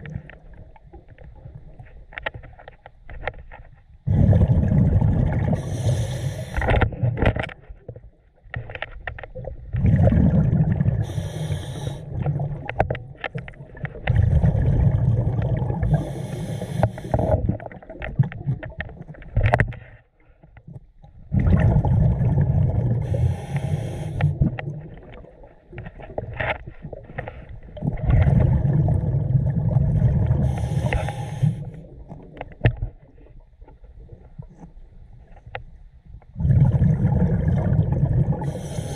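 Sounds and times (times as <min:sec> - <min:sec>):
exhaled bubbles rumbling: 0:00.0 - 0:02.2, 0:04.0 - 0:08.2, 0:09.1 - 0:19.7, 0:20.8 - 0:35.5, 0:36.2 - 0:38.9
regulator breathing hiss: 0:05.6 - 0:06.8, 0:11.0 - 0:12.1, 0:15.9 - 0:17.3, 0:23.0 - 0:24.4, 0:30.4 - 0:31.8, 0:38.4 - 0:38.9.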